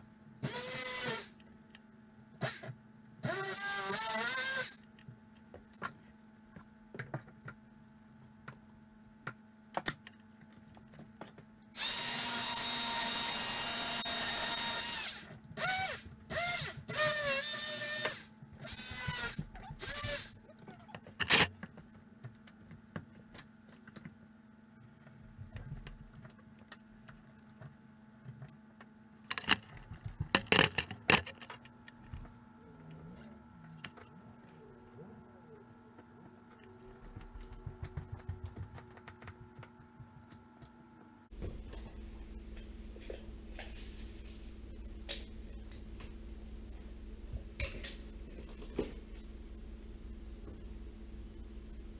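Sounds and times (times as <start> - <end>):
cordless drill running: 0.4 - 1.3, 11.8 - 20.3.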